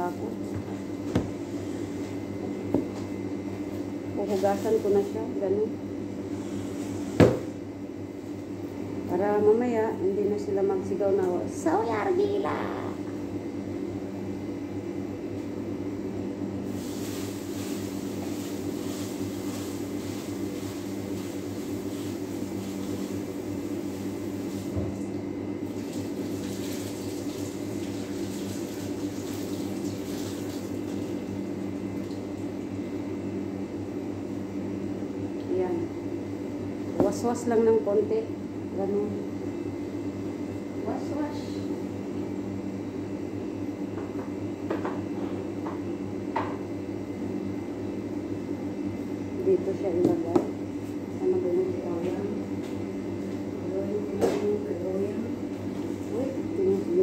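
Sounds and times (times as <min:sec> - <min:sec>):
tap water running into sink: 0:25.7 - 0:31.2.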